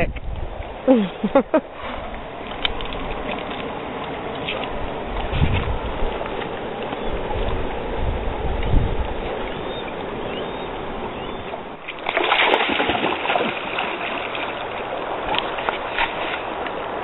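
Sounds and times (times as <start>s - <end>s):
flowing water rushing: 0.4s - 17.0s
dog splashing into river: 11.8s - 17.0s
dog swimming splashes: 11.8s - 17.0s.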